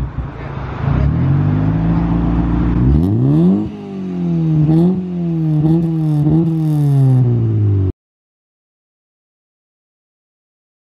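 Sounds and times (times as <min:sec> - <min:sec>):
car engine revving: 0:00.2 - 0:07.9.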